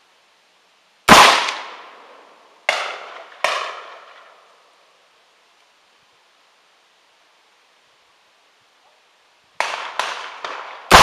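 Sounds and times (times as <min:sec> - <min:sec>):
rifle gunshots echoing: 0:01.1 - 0:01.8, 0:02.7 - 0:04.0, 0:09.6 - 0:11.0.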